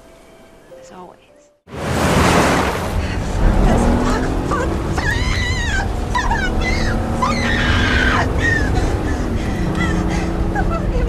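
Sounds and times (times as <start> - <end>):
tense film score: 1.7 - 11.0
car engine rumble: 1.8 - 11.0
woman crying out in distress: 4.4 - 10.8.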